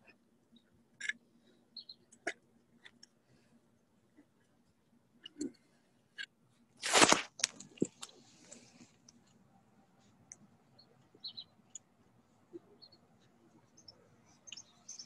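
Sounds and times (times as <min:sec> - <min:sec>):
small birds chirping: 0:00.5 - 0:02.2, 0:10.1 - 0:15.0.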